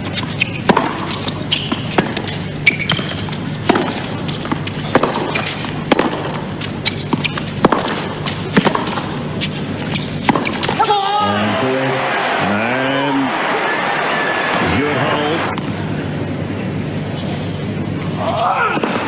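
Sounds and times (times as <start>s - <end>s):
tennis ball bouncing: 0.0s - 11.4s
arena background noise: 0.0s - 19.0s
racquet hitting tennis ball: 0.2s - 12.5s.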